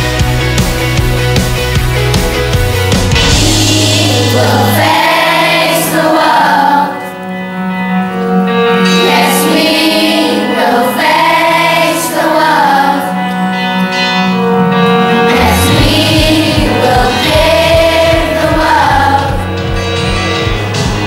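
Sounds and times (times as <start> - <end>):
instrumental backing track: 0.0 - 21.0
children's choir singing: 3.4 - 7.4, 8.4 - 13.5, 15.0 - 19.7.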